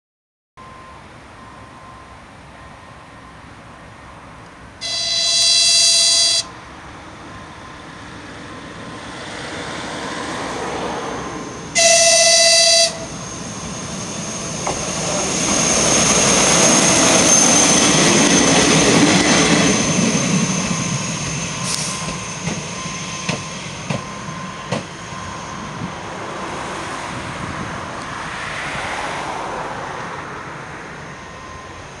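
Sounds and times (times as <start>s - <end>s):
railcar running noise: 0.6s - 32.0s
train horn blasts: 4.8s - 6.6s, 11.8s - 13.2s.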